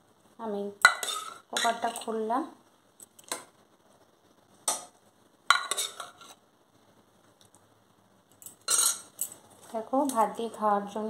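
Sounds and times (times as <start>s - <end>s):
metal ladle clinking on steel: 8.4s - 9.4s.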